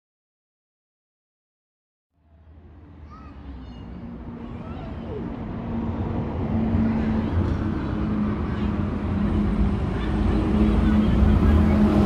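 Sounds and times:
city bus engine rumbling: 2.2s - 12.0s.

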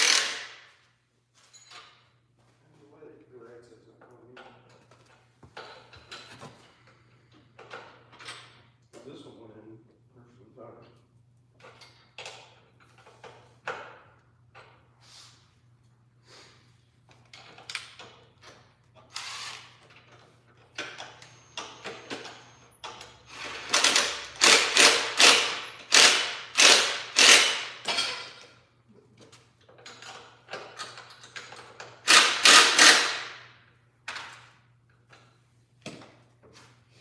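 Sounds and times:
ratchet wrench clicking: 0.0s - 0.6s, 21.0s - 27.8s, 31.8s - 33.4s.

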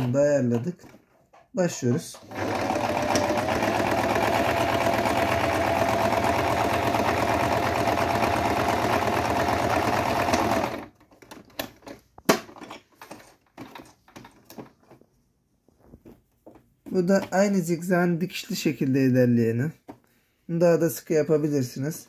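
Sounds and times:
sewing machine motor whining: 2.2s - 10.8s.

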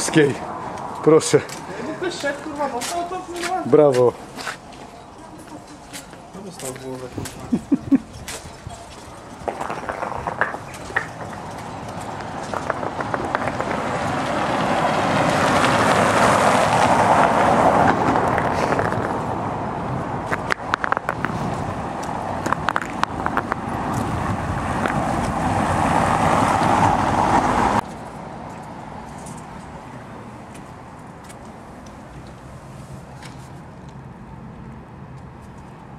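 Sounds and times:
tyres rolling over cobbles: 6.7s - 16.8s.

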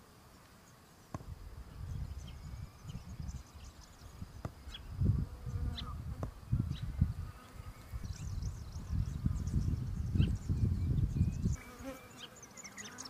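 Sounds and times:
insect buzzing: 0.2s - 13.0s.

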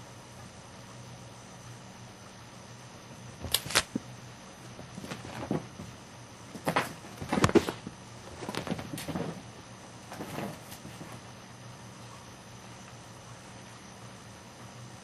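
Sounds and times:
cat thumps and scuffs on carpet: 4.7s - 11.3s.

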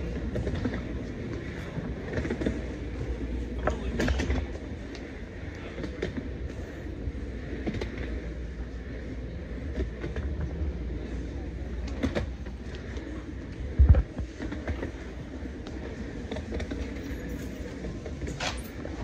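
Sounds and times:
chair casters rumbling on concrete: 0.0s - 19.0s.

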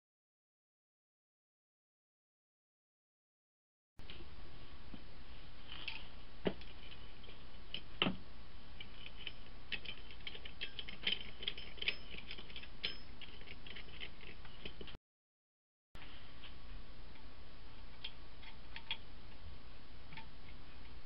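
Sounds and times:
small parts clicking and tapping: 8.8s - 15.0s, 16.4s - 19.4s, 20.1s - 21.0s.

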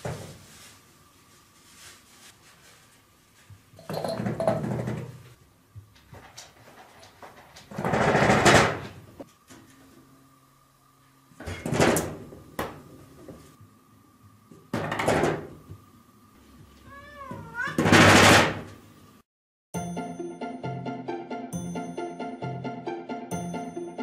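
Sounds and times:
cat meowing harshly: 16.9s - 18.1s.

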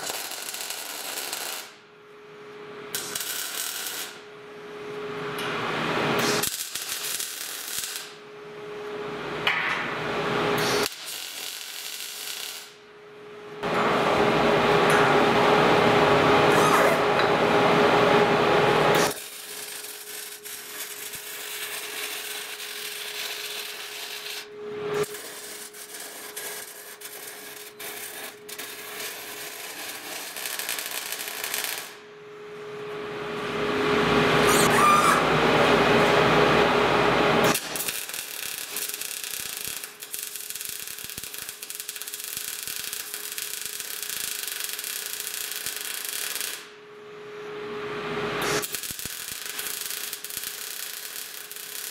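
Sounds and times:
welder arc crackling and spitting: 6.2s - 8.2s, 25.0s - 32.0s, 37.5s - 46.7s, 48.6s - 51.9s.

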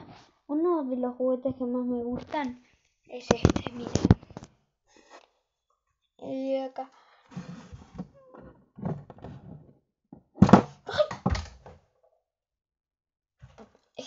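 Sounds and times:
dull knocks and thumps: 7.4s - 11.7s.

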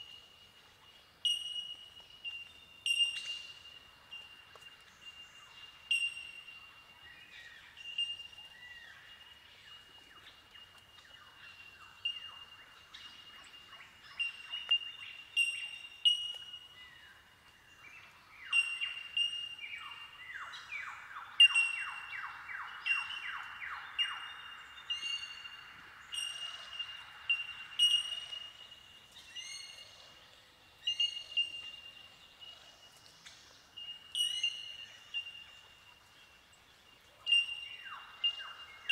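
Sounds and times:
bell-like bird calls: 1.2s - 4.2s, 5.8s - 6.5s, 14.2s - 16.7s, 21.4s - 22.1s, 26.1s - 28.8s, 34.1s - 34.8s.

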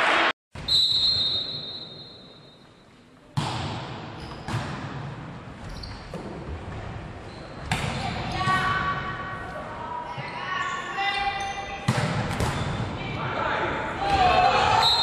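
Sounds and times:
referee whistle: 0.6s - 2.6s, 14.8s - 15.0s.

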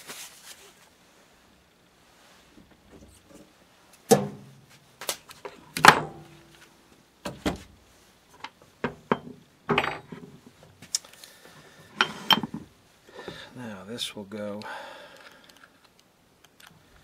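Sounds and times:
metal tools knocking on wooden workbench: 8.8s - 10.4s, 11.9s - 12.7s.

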